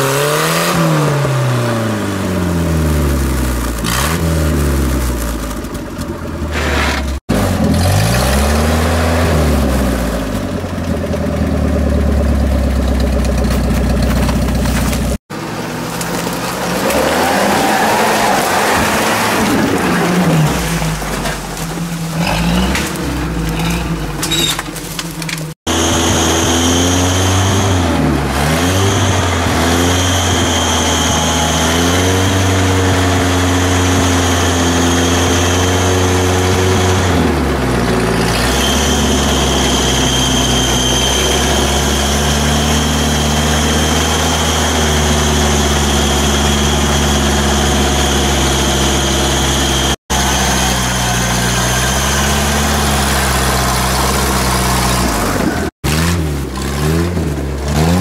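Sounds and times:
car engine running at low revs: 1.0 - 16.9.

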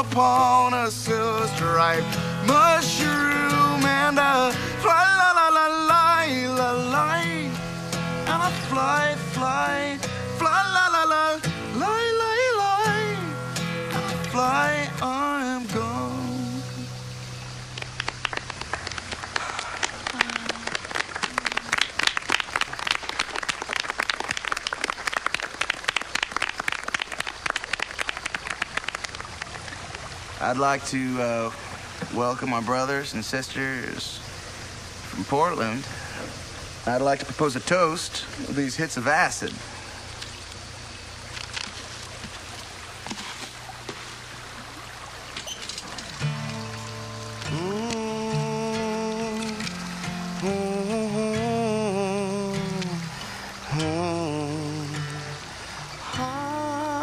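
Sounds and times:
background hiss: 0.0 - 57.0
group of people clapping: 17.6 - 30.0
faint ticks: 39.4 - 44.0, 45.4 - 50.6
music with long held notes: 46.2 - 57.0.

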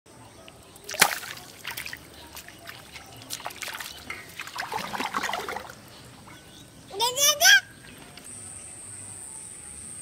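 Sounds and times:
pond water splashing: 0.7 - 6.4.

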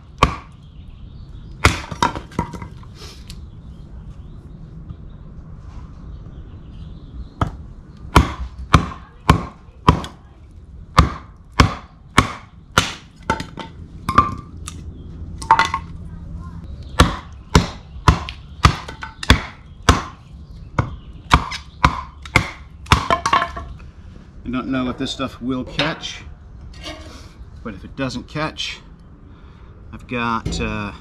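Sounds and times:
knife chopping wood: 0.2 - 0.6, 1.6 - 2.7, 7.4 - 10.2, 11.0 - 14.5, 17.0 - 20.2, 20.8 - 23.5.

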